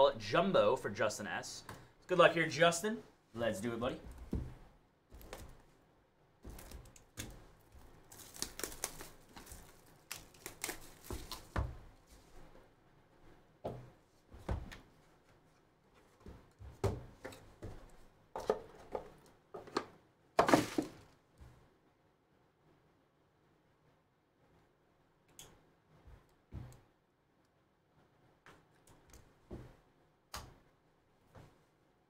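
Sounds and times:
shrink-wrap tearing and crinkling: 6.5s - 11.6s.

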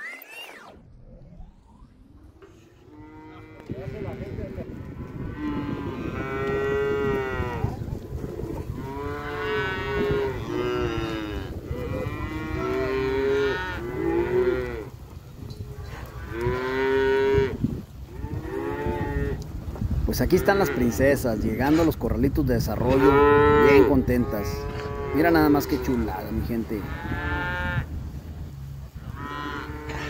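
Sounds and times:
calves bawling: 0.0s - 27.9s, 28.8s - 30.0s.

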